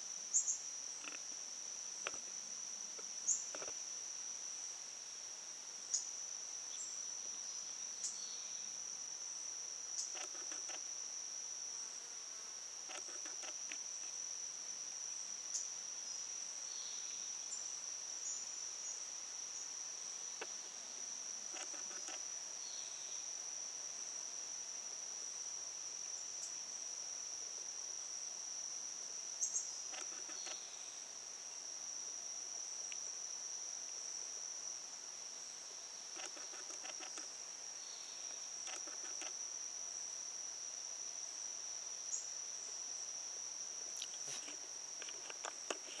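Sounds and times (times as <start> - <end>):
high-pitched insect trill: 0.0 - 46.0.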